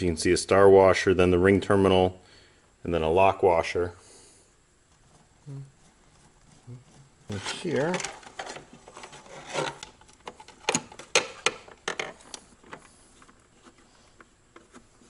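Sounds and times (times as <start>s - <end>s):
wire rubbing and scraping: 4.8s - 10.7s.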